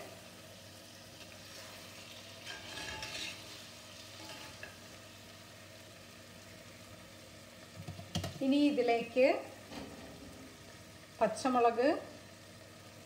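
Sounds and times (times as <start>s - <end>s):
low steady sizzle: 0.0s - 13.0s
spatula scraping a pan: 1.5s - 4.8s.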